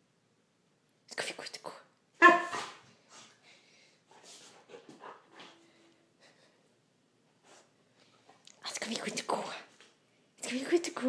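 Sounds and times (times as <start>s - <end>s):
dog sniffing: 4.1s - 5.6s.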